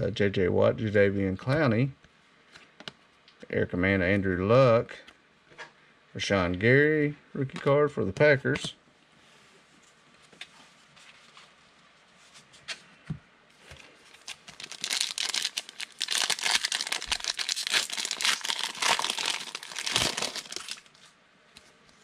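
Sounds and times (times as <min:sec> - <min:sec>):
foil wrapper crinkling: 0:14.1 - 0:21.0.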